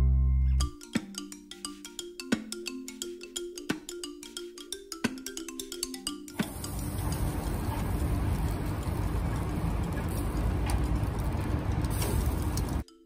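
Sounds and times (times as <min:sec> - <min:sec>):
charcoal grill rumble: 0:06.4 - 0:12.8
grill hissing: 0:06.4 - 0:12.8.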